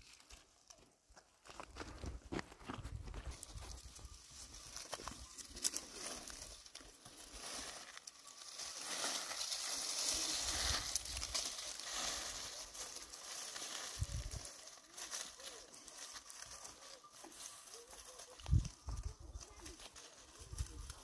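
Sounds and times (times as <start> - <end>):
rustling crinkling noise: 0.0 - 21.0.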